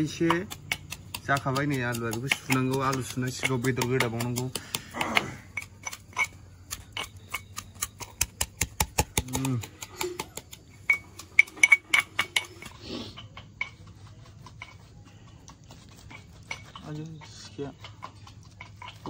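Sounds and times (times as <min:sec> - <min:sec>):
metal pestle pounding in mortar: 0:00.0 - 0:13.9
metal-on-metal clinks: 0:05.2 - 0:08.2, 0:09.7 - 0:14.9, 0:16.0 - 0:19.0.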